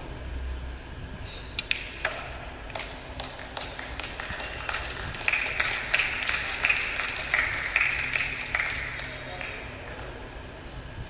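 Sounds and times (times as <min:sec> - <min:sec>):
audience clapping: 0:02.7 - 0:10.1.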